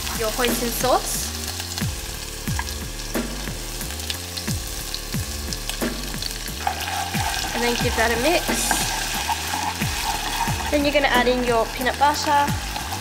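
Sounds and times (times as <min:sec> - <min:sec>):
garlic sizzling in oil: 0:00.0 - 0:13.0
low repeating beat: 0:00.1 - 0:06.6.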